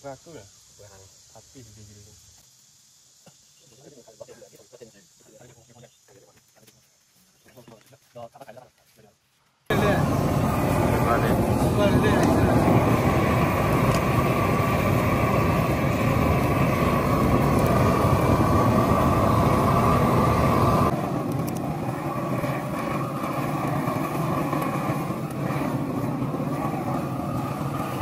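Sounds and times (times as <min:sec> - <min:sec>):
propane torch burning: 0:09.7 - 0:28.0.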